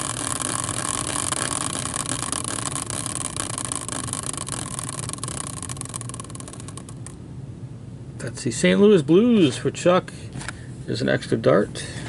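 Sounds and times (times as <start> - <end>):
prize wheel whirring and ticking: 0.0 - 7.2.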